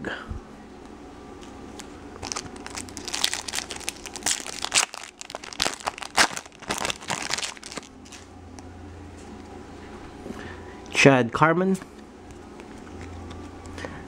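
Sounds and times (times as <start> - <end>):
foil wrapper tearing and crinkling: 2.2 - 8.3.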